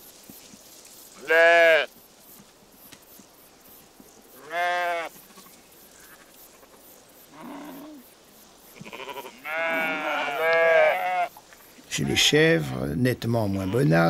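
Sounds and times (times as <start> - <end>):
sheep bleating: 1.2 - 1.9, 4.4 - 5.1, 8.8 - 11.3.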